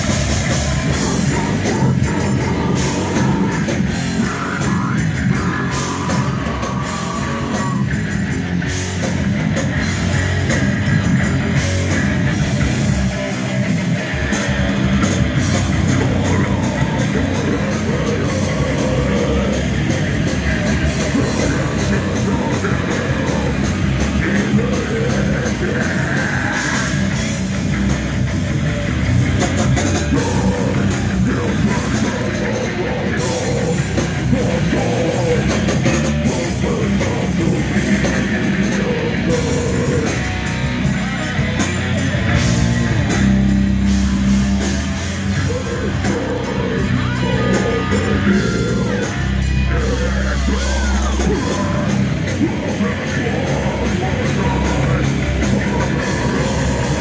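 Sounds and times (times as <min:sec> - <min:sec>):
distorted electric guitars: 0:00.0 - 0:57.0
pounding drum kit: 0:00.0 - 0:57.0
person singing into a microphone: 0:00.7 - 0:08.0, 0:15.8 - 0:27.1, 0:30.0 - 0:40.4, 0:45.4 - 0:57.0.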